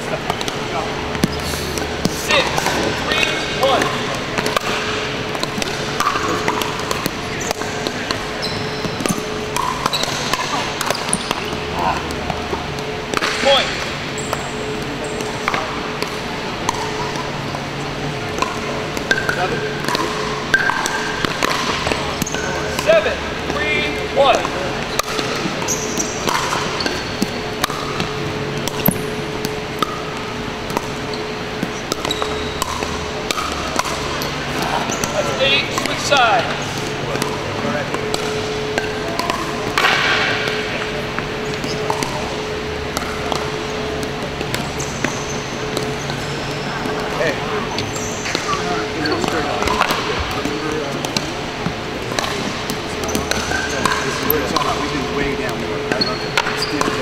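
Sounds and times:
faint hum: 0:00.0 - 0:57.0.

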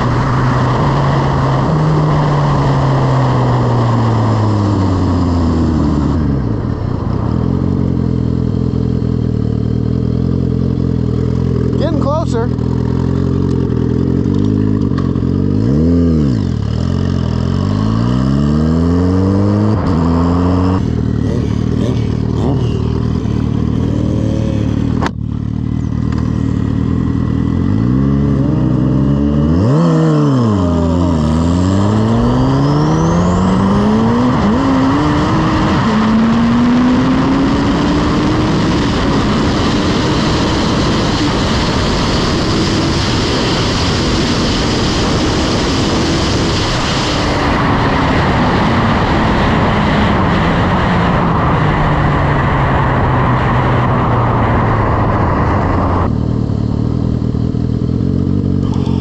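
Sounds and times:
motorcycle engine revving and accelerating: 0:00.0 - 0:59.0.

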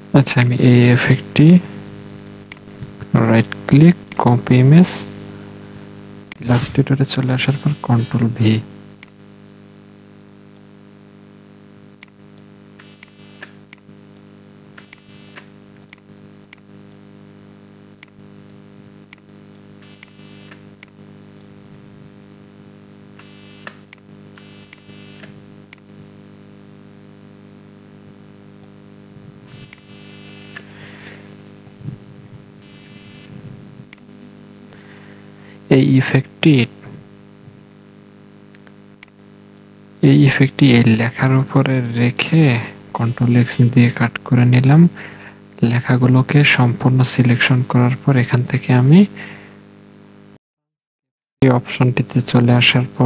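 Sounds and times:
steady electrical hum: 0:00.0 - 0:50.4
short bursts of hiss: 0:06.4 - 0:06.9.

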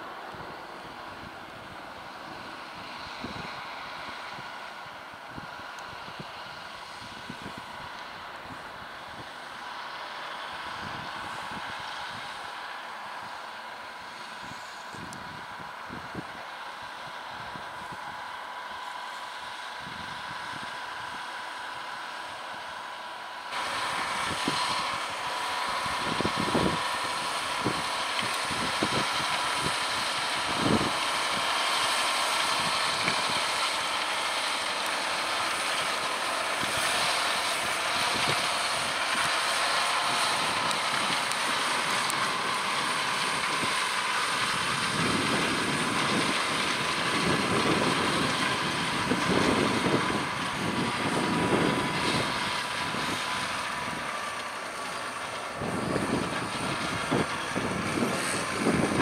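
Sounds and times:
tractor diesel engine running: 0:00.0 - 0:59.0
wind buffeting microphone: 0:23.6 - 0:31.6, 0:36.6 - 0:54.2, 0:55.5 - 0:59.0.

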